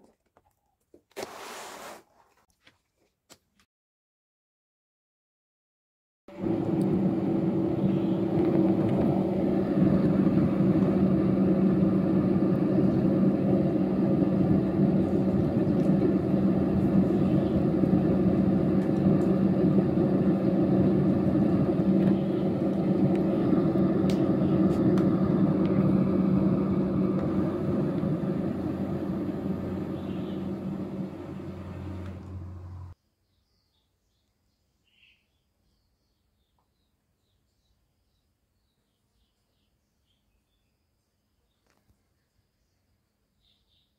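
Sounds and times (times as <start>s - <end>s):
small electric fan humming: 6.3s - 33.0s.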